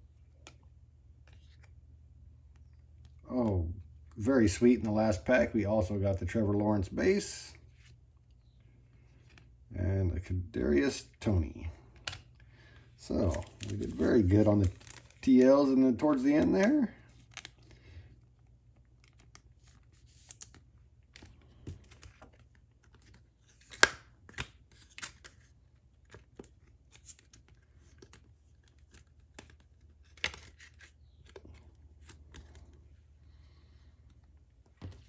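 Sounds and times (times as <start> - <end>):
plastic rustling: 12.6 - 18.2.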